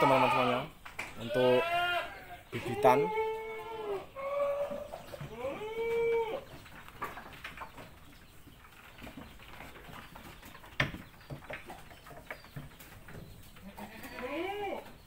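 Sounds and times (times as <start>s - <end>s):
goat kid bleating: 0.0s - 6.4s, 13.6s - 14.9s
knocks and scuffs in wooden pen: 0.0s - 15.0s.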